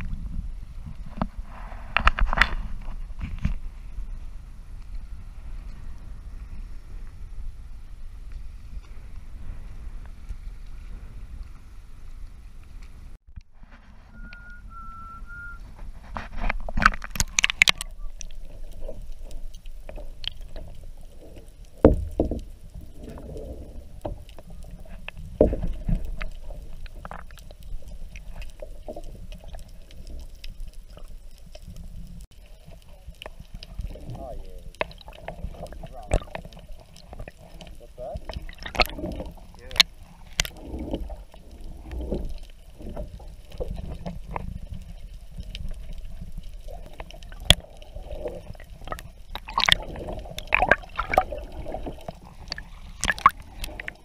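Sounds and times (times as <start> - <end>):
low rush of moving water: 0.0 - 54.0
wind: 0.0 - 54.0
water splashing and bubbling: 13.6 - 54.0
muffled underwater sound: 17.1 - 54.0.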